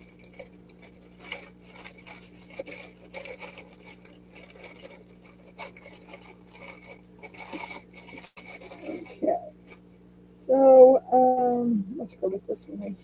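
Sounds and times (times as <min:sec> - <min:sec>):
plastic and foil bags crinkling: 0:00.0 - 0:09.9.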